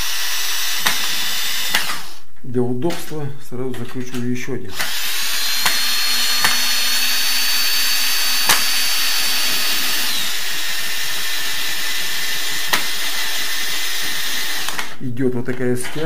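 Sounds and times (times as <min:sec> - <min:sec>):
cordless drill whining: 0:00.0 - 0:02.3, 0:04.7 - 0:15.0, 0:15.8 - 0:16.0
clicks from drill bit and screw: 0:14.6 - 0:15.0.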